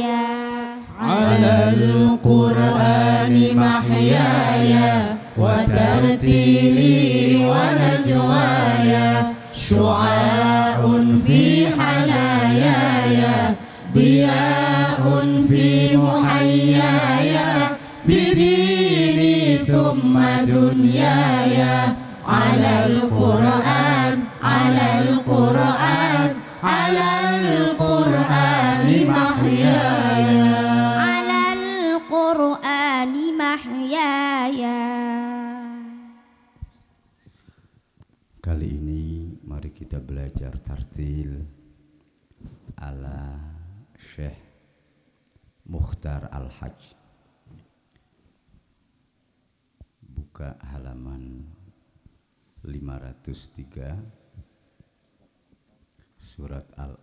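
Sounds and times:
men chanting together: 1.0s - 31.1s.

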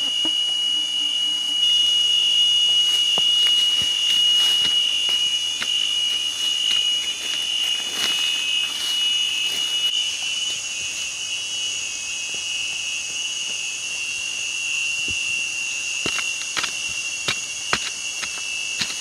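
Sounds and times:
insects droning: 0.0s - 19.0s
fingers digging in loose soil: 2.7s - 9.9s, 16.1s - 19.0s.

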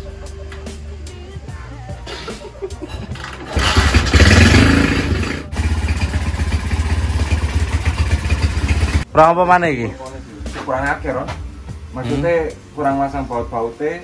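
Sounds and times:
motorcycle engine running: 3.3s - 9.0s.

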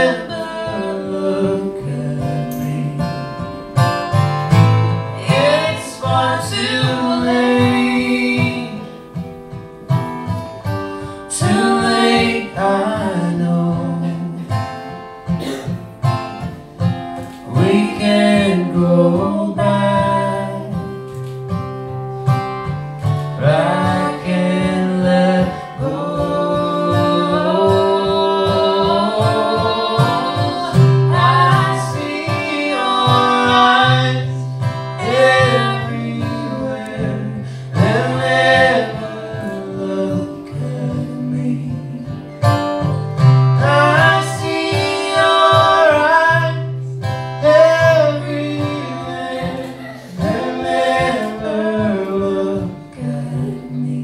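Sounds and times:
woman singing: 0.0s - 3.3s, 5.1s - 8.9s, 11.3s - 14.5s, 17.5s - 20.8s, 23.4s - 42.2s, 43.6s - 54.0s
acoustic guitar: 0.0s - 54.0s.

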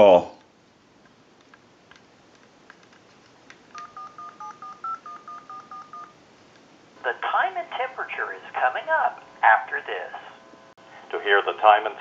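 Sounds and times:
touch-tone beeps: 3.8s - 6.2s.

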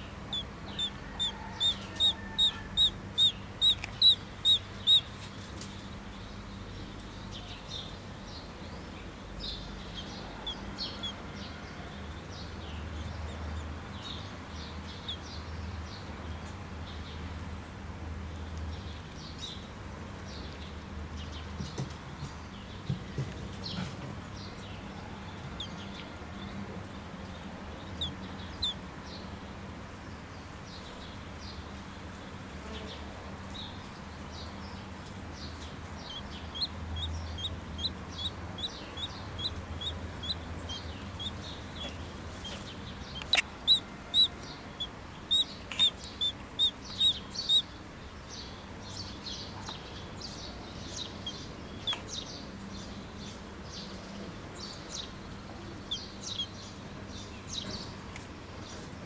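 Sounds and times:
ducklings peeping: 0.0s - 5.9s, 14.8s - 15.5s, 27.6s - 28.9s, 35.4s - 49.8s, 50.4s - 52.5s, 55.8s - 59.0s.

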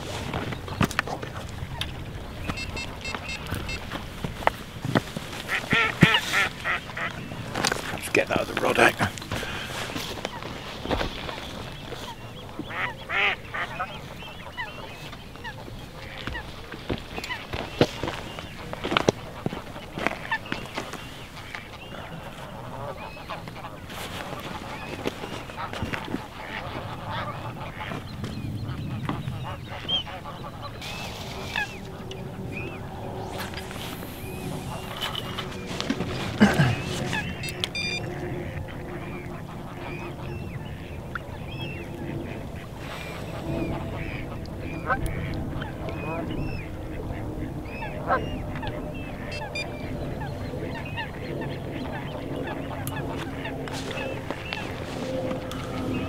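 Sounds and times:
waterfowl honking: 0.0s - 56.0s
low rumble: 26.6s - 56.0s.

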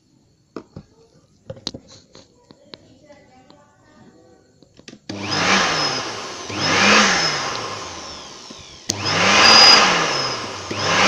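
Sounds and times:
electric blower spinning up: 5.1s - 11.0s.

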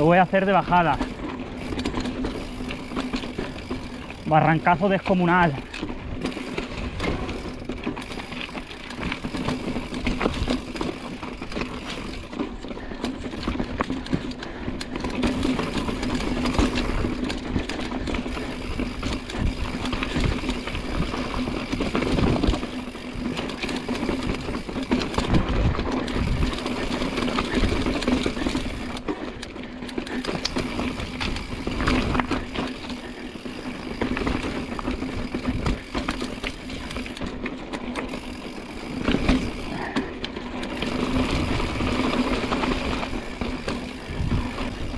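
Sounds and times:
bike frame rattling: 0.0s - 44.9s.

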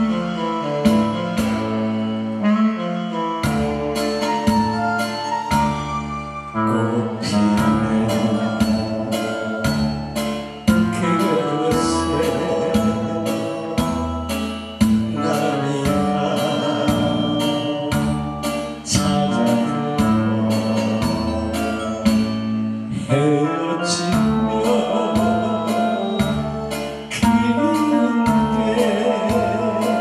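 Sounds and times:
backing track with beat and bass: 0.0s - 2.6s, 3.4s - 30.0s
man singing into a microphone: 6.6s - 14.4s, 15.0s - 22.2s, 22.9s - 30.0s.

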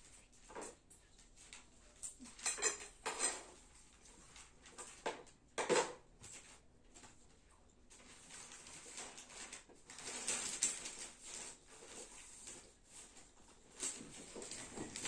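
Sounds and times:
dishes clinking: 2.2s - 3.5s.

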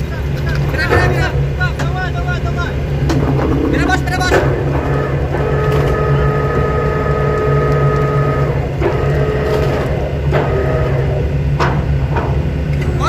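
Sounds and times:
engine hum: 0.0s - 13.0s
high machine tones: 2.7s - 11.5s.

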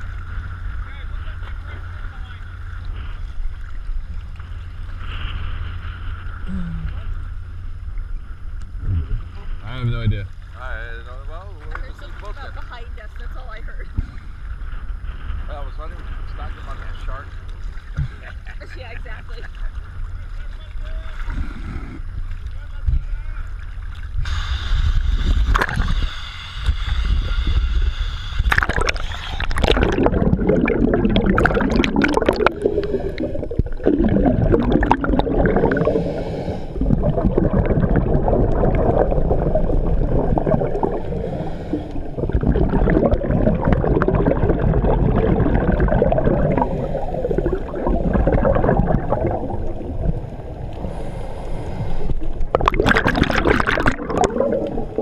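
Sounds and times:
underwater regulator bubbling: 4.9s - 7.4s, 8.6s - 10.1s, 24.2s - 55.0s.

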